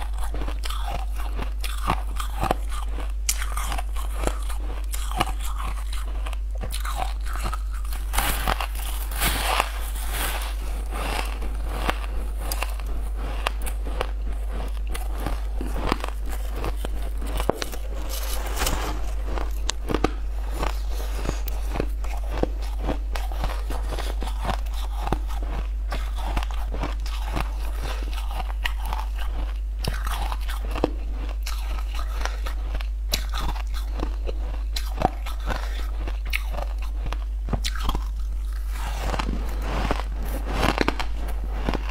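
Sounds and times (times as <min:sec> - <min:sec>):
ice crunching between teeth: 0:00.0 - 0:41.9
low hum: 0:04.0 - 0:26.6.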